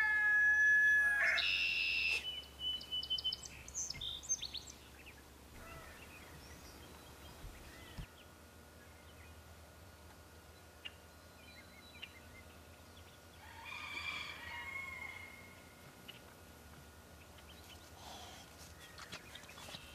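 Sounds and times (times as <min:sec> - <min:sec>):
bird chirps: 0:01.3 - 0:08.1.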